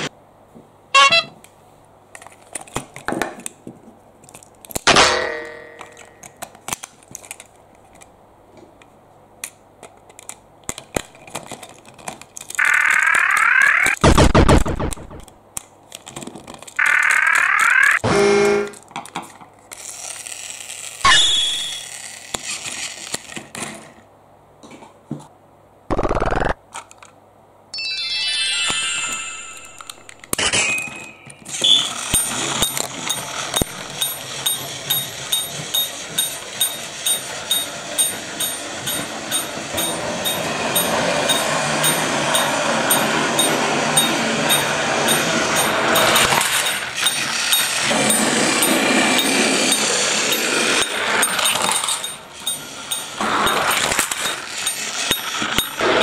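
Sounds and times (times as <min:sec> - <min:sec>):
plastic toys knocking and rattling: 0:02.2 - 0:04.9, 0:09.4 - 0:14.0, 0:15.9 - 0:18.0, 0:29.8 - 0:56.0
regular clicking of toy train: 0:05.8 - 0:08.1, 0:09.4 - 0:13.5, 0:18.7 - 0:21.0, 0:21.7 - 0:24.0, 0:31.3 - 0:56.0
toy train motor buzz: 0:16.8 - 0:18.8, 0:19.7 - 0:23.4, 0:31.5 - 0:56.0
falling electronic jingle: 0:27.8 - 0:30.2.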